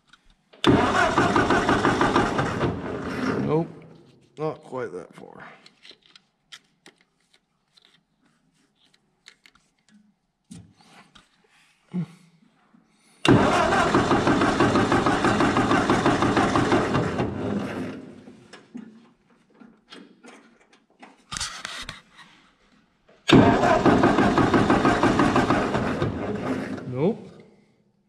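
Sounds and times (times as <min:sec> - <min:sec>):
tractor starter cranking engine: 0:00.6 - 0:03.9, 0:13.2 - 0:18.7, 0:23.3 - 0:27.1.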